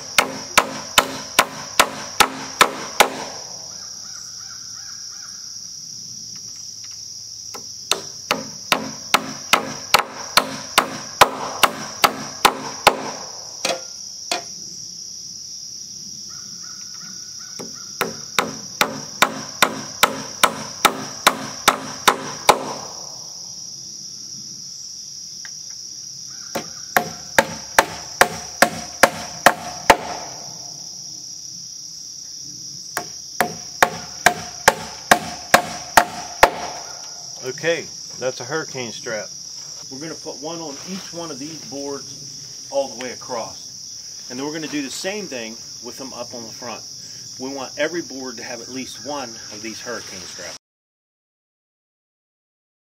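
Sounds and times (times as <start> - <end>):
hammer driving nails: 0.1 - 3.4, 7.9 - 14.4, 17.6 - 22.8, 26.6 - 30.3, 33.0 - 36.8.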